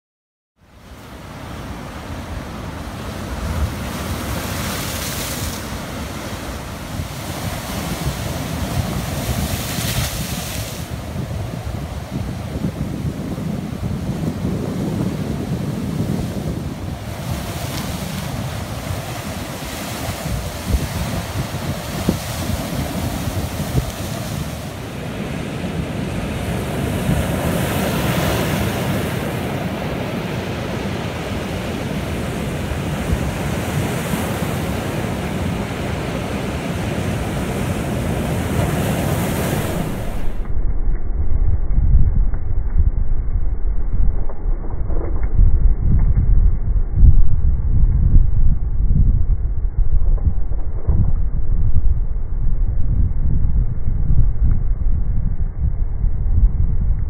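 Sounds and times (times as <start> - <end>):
wind buffeting microphone: 0.8 - 57.0
waves crashing against rocks: 1.1 - 40.6.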